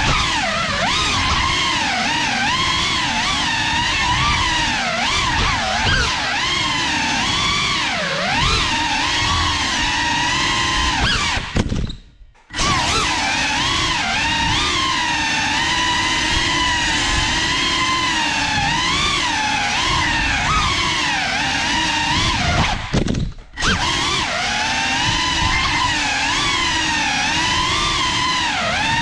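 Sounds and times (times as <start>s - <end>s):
drone motors whining: 0.0s - 29.0s.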